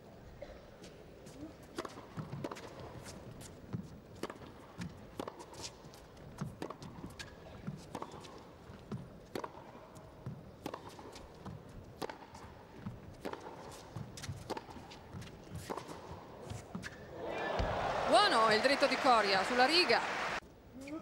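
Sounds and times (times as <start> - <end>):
tennis ball bouncing: 3.7 - 5.5, 6.4 - 20.0
tennis ball struck by rackets: 10.6 - 13.6, 14.2 - 16.9.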